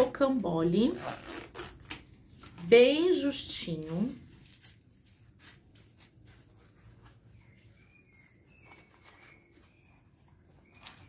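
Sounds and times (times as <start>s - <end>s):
fabric rustling: 0.8s - 11.0s.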